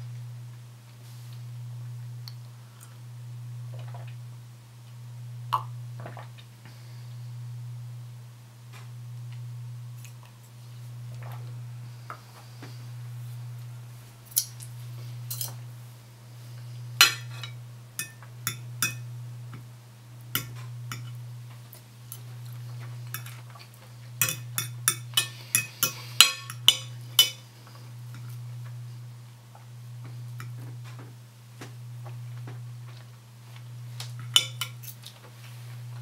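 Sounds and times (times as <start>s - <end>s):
cutlery clinking on a plate: 17.0s - 19.0s, 24.2s - 27.4s, 34.3s - 35.0s.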